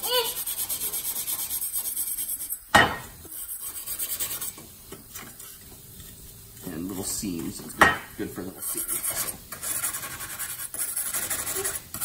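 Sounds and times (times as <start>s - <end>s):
wire brush scrubbing metal: 8.5s - 12.0s.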